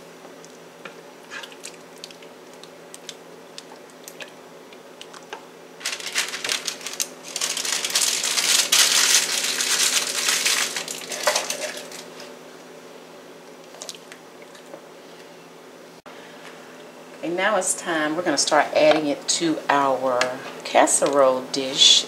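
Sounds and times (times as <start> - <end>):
plastic packaging crinkling: 5.0 - 12.3.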